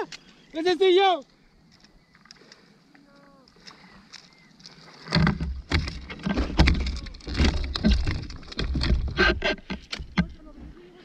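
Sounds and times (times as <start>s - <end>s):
faint chirps: 0.2s - 4.9s
water splashing around kayak: 3.6s - 11.0s.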